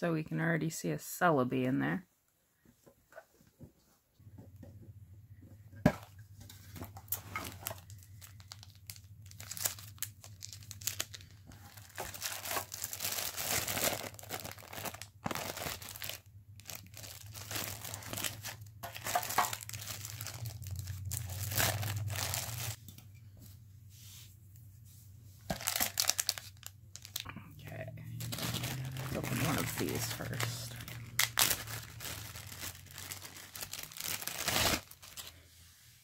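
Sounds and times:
plastic bag crinkling: 0:06.9 - 0:22.8, 0:25.5 - 0:35.4
faint low hum: 0:26.2 - 0:36.0.

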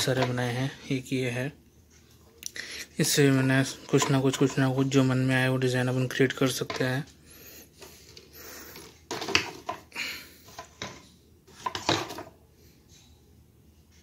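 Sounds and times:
handling knocks and rustles: 0:07.8 - 0:12.3.

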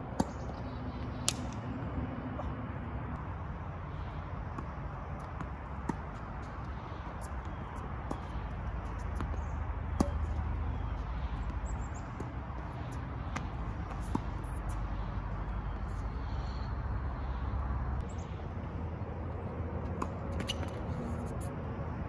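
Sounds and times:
low outdoor rumble: 0:00.0 - 0:22.0
tennis ball hit by racket: 0:09.0 - 0:10.8.

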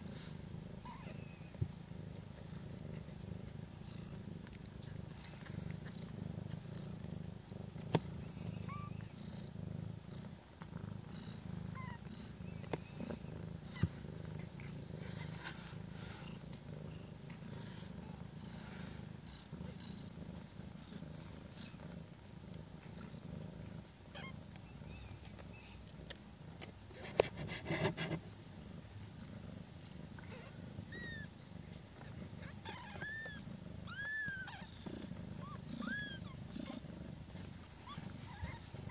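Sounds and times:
cat purring: 0:00.0 - 0:38.9
high kitten squeaks: 0:32.4 - 0:36.8.

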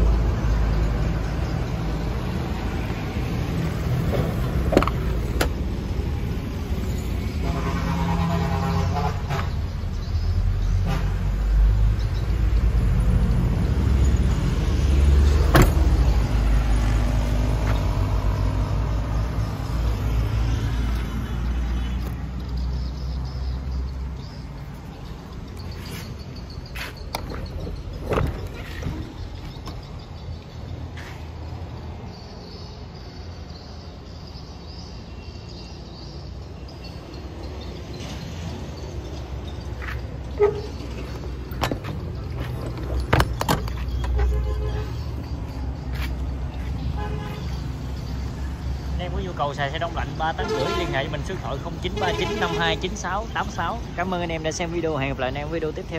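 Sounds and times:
engine rumbling: 0:00.0 - 0:35.0, 0:36.1 - 0:55.9.

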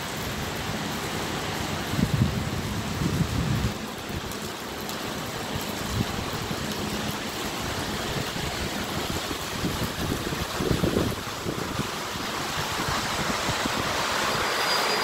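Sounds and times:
rain on wet pavement: 0:00.0 - 0:15.0
wind gusting on microphone: 0:00.5 - 0:15.0.

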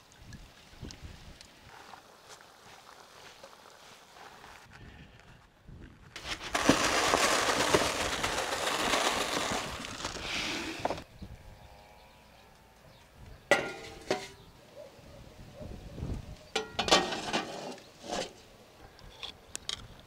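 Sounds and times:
grain pouring into plastic trough: 0:06.2 - 0:11.0
metal lid clanking: 0:13.5 - 0:14.5, 0:16.6 - 0:18.3.

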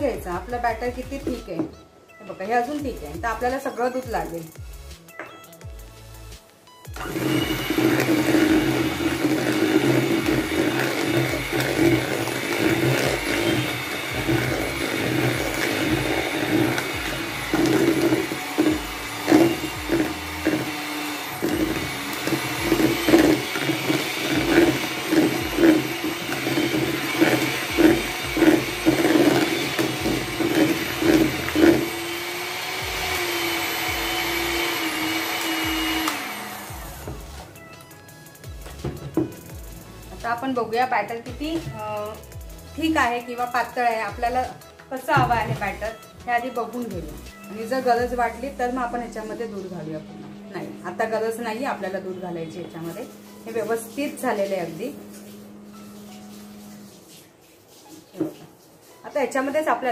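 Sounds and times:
electric hand mixer running: 0:06.9 - 0:37.6, 0:46.6 - 0:57.0.

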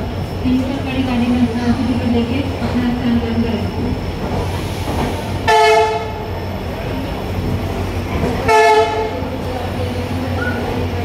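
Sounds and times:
train rumbling: 0:00.0 - 0:11.0
train horn blasts: 0:05.5 - 0:06.2, 0:08.5 - 0:09.2.

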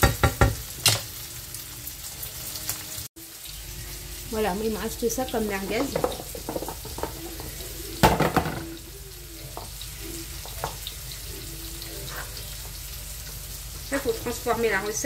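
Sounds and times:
onions sizzling in a pan: 0:00.0 - 0:15.0
sausages clattering onto cutting board: 0:05.6 - 0:08.8.

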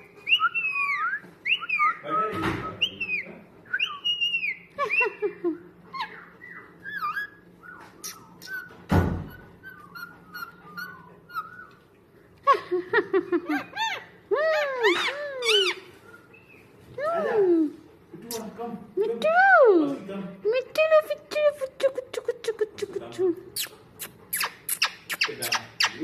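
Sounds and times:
parakeet whistling and chirping: 0:00.0 - 0:05.2, 0:05.9 - 0:11.8, 0:13.6 - 0:16.7, 0:24.3 - 0:26.0
thump: 0:08.9 - 0:09.4.

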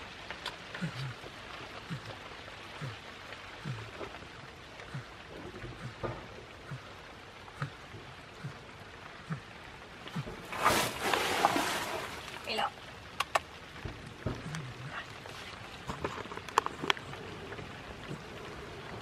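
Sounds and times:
steady rain hiss: 0:00.0 - 0:19.0
loud rustle: 0:10.4 - 0:12.3.

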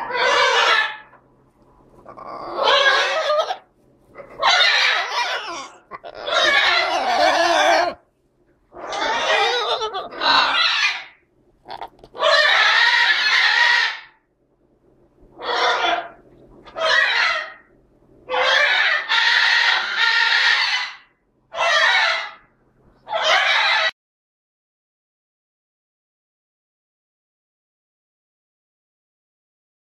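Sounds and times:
macaws harsh raspy calls: 0:00.0 - 0:01.2, 0:02.1 - 0:03.6, 0:04.2 - 0:08.0, 0:08.8 - 0:14.2, 0:15.4 - 0:17.7, 0:18.3 - 0:22.5, 0:23.1 - 0:23.9.

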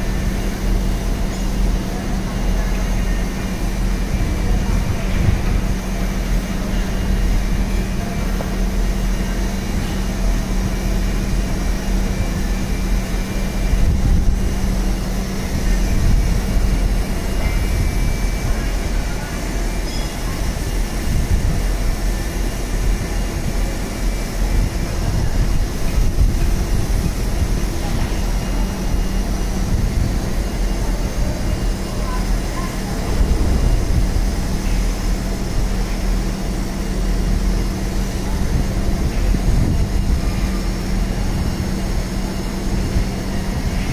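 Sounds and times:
machinery humming and rumbling: 0:00.0 - 0:43.9.

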